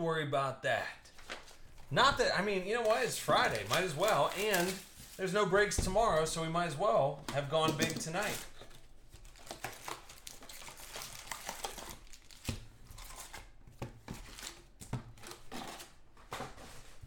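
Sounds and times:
foil packs crinkling: 0:01.1 - 0:06.4, 0:07.3 - 0:17.0
packs tapping on table: 0:07.3 - 0:08.7.

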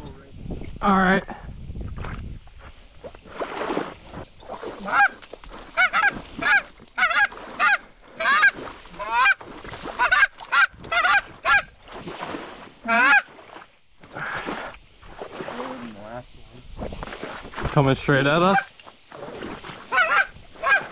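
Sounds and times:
goose honking: 0:04.9 - 0:05.2, 0:05.8 - 0:09.4, 0:10.0 - 0:11.7, 0:12.8 - 0:13.3, 0:19.9 - 0:20.9.

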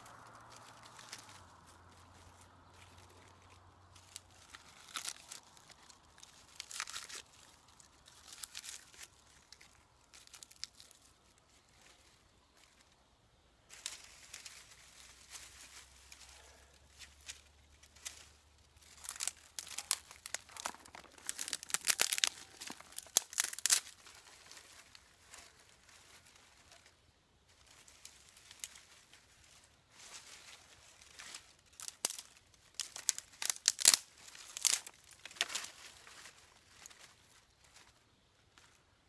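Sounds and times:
dry leaves crackling: 0:00.0 - 0:39.0
sticks snapping: 0:02.7 - 0:11.1, 0:17.0 - 0:25.6, 0:27.6 - 0:28.9, 0:31.0 - 0:36.1.

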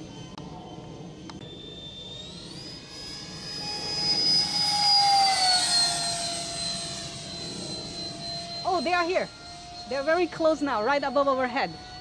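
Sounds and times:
electric ducted fans whining: 0:00.0 - 0:12.0.

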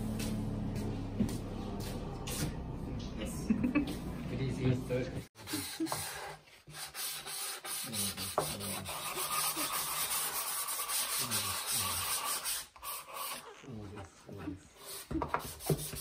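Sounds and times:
hand-sanding wood: 0:05.4 - 0:16.0.

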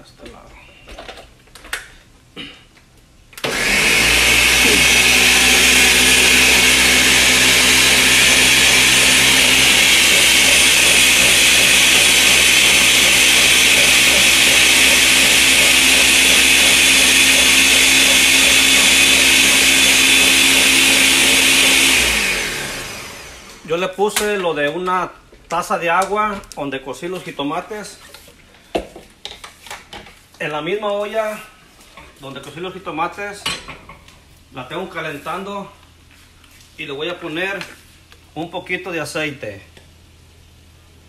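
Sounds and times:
blender running: 0:03.4 - 0:23.7.

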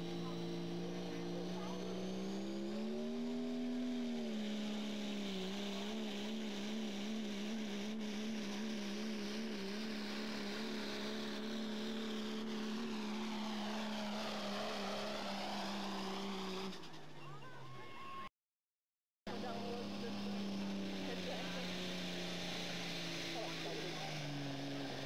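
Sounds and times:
diesel truck engine under load: 0:00.0 - 0:17.7, 0:19.3 - 0:25.0.

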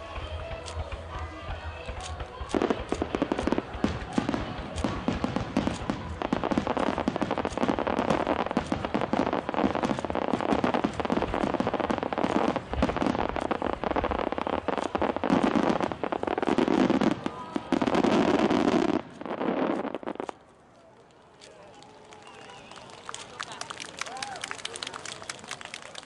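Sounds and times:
fireworks bursting and crackling: 0:00.0 - 0:26.0.

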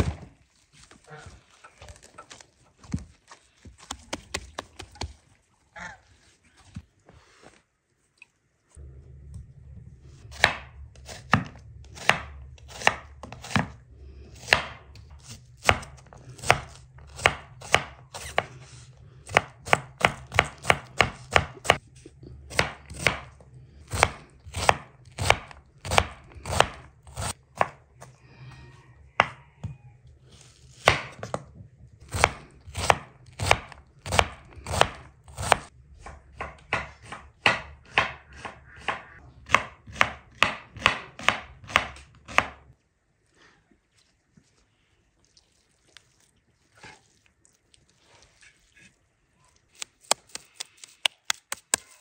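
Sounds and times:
steady low hum: 0:08.6 - 0:28.6
knife chopping on wooden board: 0:10.3 - 0:13.8, 0:15.6 - 0:18.5, 0:19.3 - 0:21.8, 0:22.5 - 0:23.3, 0:32.1 - 0:42.6.

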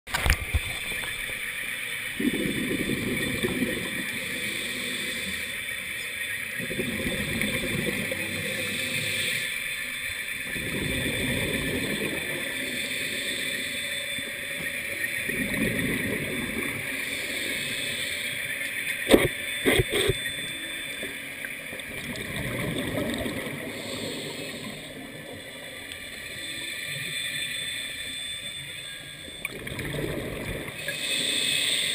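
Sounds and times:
gurgling exhalation bubbles: 0:02.2 - 0:04.0, 0:06.6 - 0:08.1, 0:21.9 - 0:23.7.

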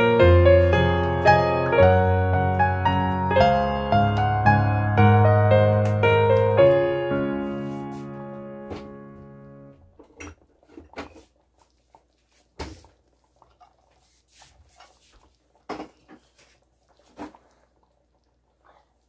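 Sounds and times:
piano chord: 0:00.0 - 0:09.8.

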